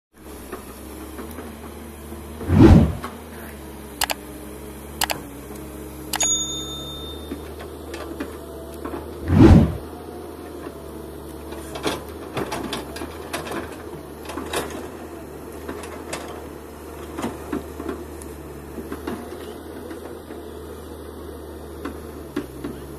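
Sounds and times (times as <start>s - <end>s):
excavator diesel engine running: 0.2s - 22.9s
machine clicks and clanks: 5.0s - 5.2s
heavy thuds: 9.2s - 9.8s.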